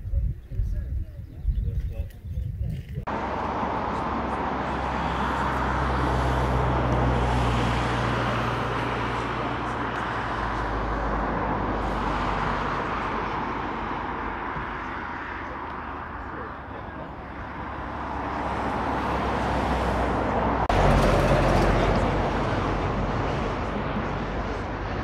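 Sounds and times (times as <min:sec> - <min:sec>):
aircraft engine passing: 0:03.1 - 0:14.9.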